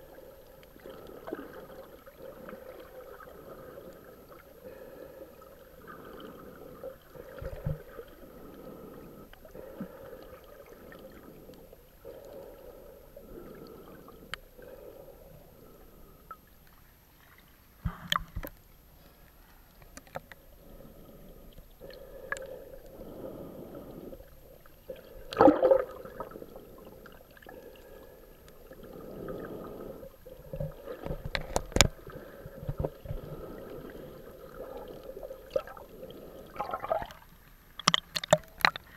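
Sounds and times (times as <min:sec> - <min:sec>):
muffled underwater water noise: 0:00.0 - 0:38.9
water splashes: 0:24.6 - 0:29.6, 0:30.3 - 0:37.2, 0:37.8 - 0:38.9.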